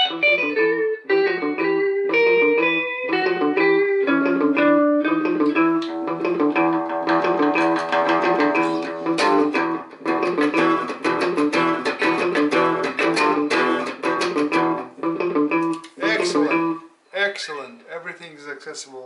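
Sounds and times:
electric guitar with delay echoes: 0:00.0 - 0:16.9.

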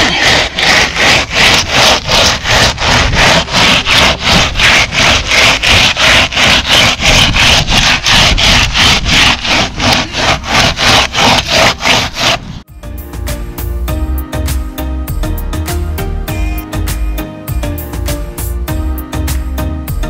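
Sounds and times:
board scraping wet concrete: 0:00.0 - 0:14.6.

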